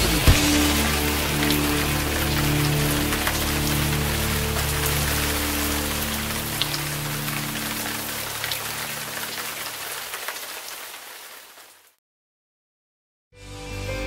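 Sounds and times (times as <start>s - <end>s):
low sustained music notes: 0.0s - 9.8s
sharp raindrop hits: 0.0s - 11.7s
rain falling: 0.0s - 12.0s.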